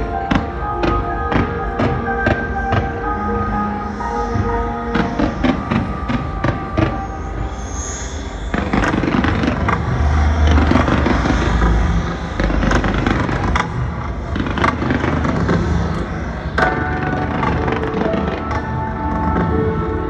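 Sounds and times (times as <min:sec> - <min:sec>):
deep rumble: 0:02.5 - 0:20.0
fireworks cracking and popping: 0:04.9 - 0:07.3, 0:08.4 - 0:19.8.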